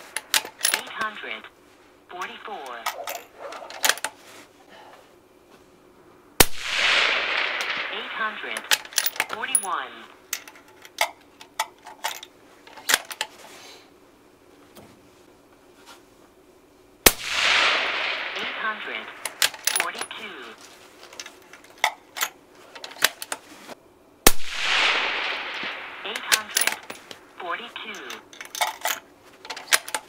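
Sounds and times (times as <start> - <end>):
rifle shot with echo: 6.4 - 9.6, 17.0 - 20.2, 24.3 - 27.3
sharp clicks: 17.4 - 20.2.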